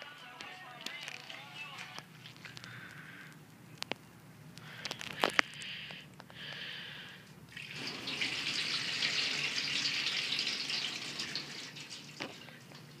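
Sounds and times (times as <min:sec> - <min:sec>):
water running: 0:07.5 - 0:13.0.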